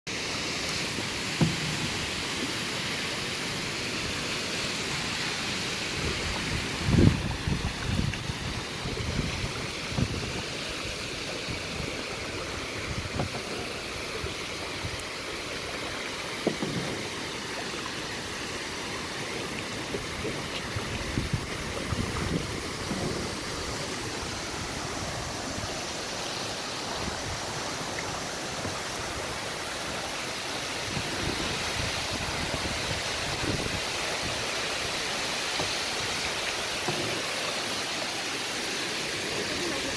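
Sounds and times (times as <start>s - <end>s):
waterfall rushing: 0.1s - 39.9s
kayak paddle thumps and splashes: 1.3s - 2.4s, 11.6s - 15.0s, 16.3s - 18.0s, 19.2s - 25.4s, 35.5s - 37.8s.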